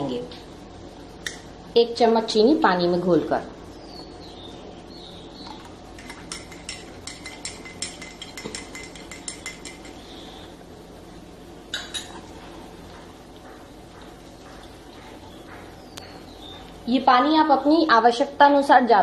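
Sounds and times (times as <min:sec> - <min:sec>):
spoon clinking against glass: 0:06.0 - 0:10.0, 0:11.7 - 0:12.2.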